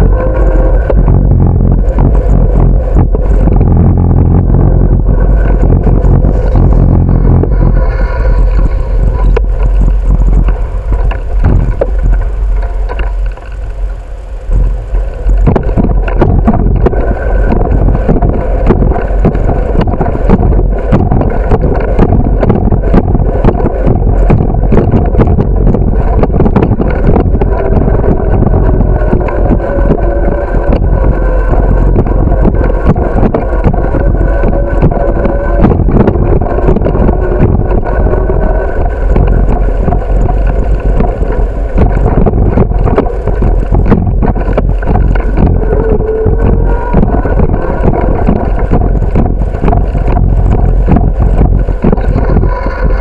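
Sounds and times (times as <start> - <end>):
bicycle rolling rumble: 0.0 - 53.0
wind buffeting microphone: 0.0 - 53.0
bicycle knocks and rattles: 9.2 - 14.0, 14.6 - 47.4.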